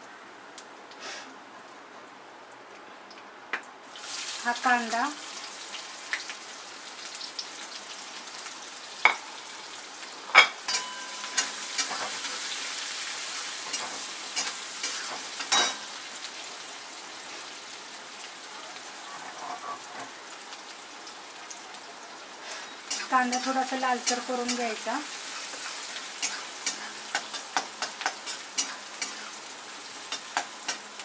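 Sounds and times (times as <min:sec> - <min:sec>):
onion sizzling in hot oil: 0:03.8 - 0:31.0
metal spatula scraping a wok: 0:19.2 - 0:20.1.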